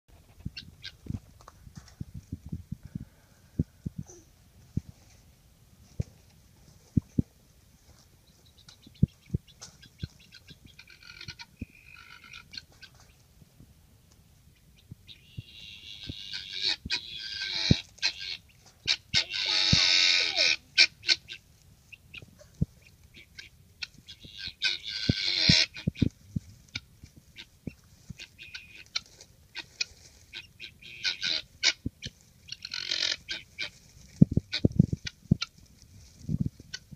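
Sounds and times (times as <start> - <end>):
guinea fowl calling harshly: 8.5 - 13.0, 15.1 - 21.4, 22.1 - 26.1, 26.7 - 33.8, 34.5 - 35.5.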